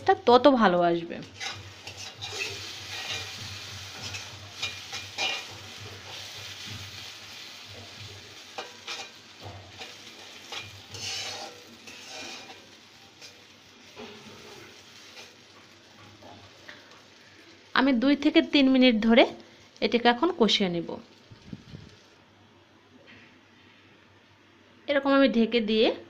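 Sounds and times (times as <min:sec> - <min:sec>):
spice paste sizzling in oil: 0:00.2 - 0:22.2
spoon scraping metal pot: 0:01.4 - 0:03.4, 0:09.8 - 0:12.6.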